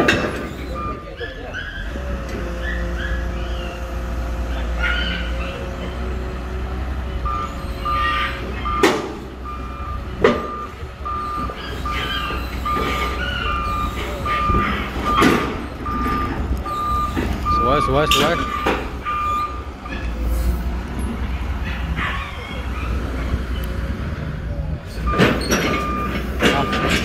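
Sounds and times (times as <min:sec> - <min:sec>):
tracks clanking on metal ramp: 0:00.0 - 0:00.8, 0:10.2 - 0:22.6, 0:24.9 - 0:27.0
excavator diesel engine under load: 0:00.0 - 0:27.0
travel alarm beeping: 0:00.7 - 0:01.2, 0:07.2 - 0:20.0, 0:25.1 - 0:27.0.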